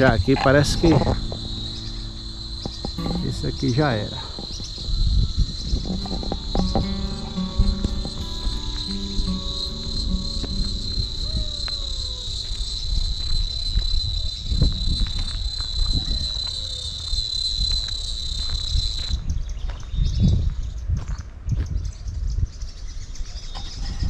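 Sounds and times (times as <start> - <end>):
high-pitched insect buzz: 0.0 - 16.5.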